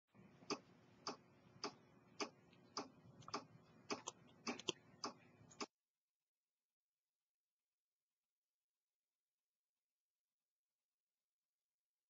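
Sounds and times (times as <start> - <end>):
clock ticking: 0.2 - 5.7.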